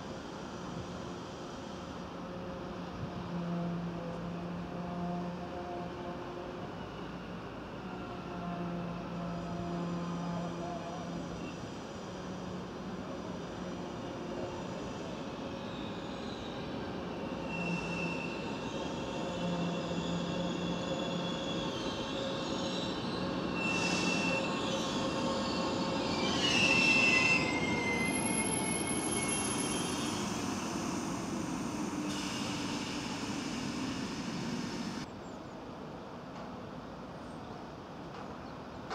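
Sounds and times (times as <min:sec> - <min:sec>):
electric train rumbling: 0:00.0 - 0:35.1
high-pitched brake squeals: 0:14.3 - 0:34.4.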